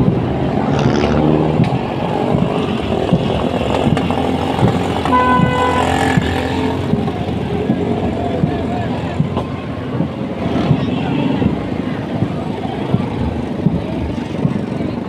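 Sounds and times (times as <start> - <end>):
motorcycle engines running: 0.0 - 15.0
vehicle horn: 5.0 - 6.7.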